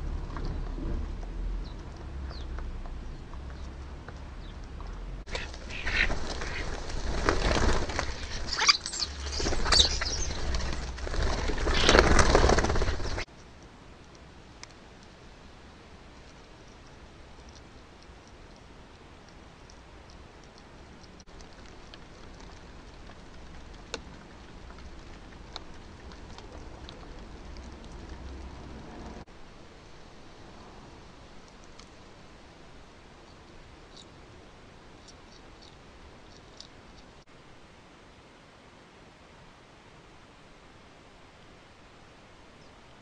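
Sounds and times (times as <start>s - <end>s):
birds flapping wings and scuffling: 5.3s - 13.3s.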